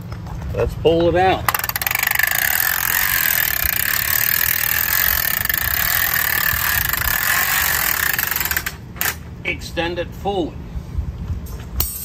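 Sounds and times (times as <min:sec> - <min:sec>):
awning roller whirring: 0:01.5 - 0:09.2.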